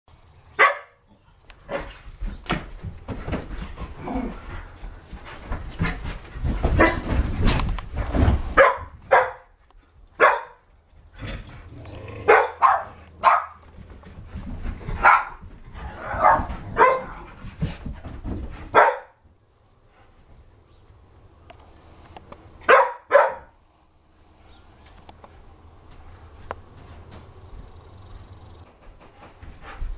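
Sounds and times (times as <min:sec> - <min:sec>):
dogs barking: 0:00.6 - 0:01.0, 0:08.6 - 0:09.5, 0:10.2 - 0:10.6, 0:12.2 - 0:13.7, 0:15.0 - 0:15.4, 0:16.0 - 0:17.3, 0:18.7 - 0:19.2, 0:22.6 - 0:23.6
low thumping of dogs romping: 0:01.6 - 0:09.2, 0:12.6 - 0:20.5, 0:25.2 - 0:29.9.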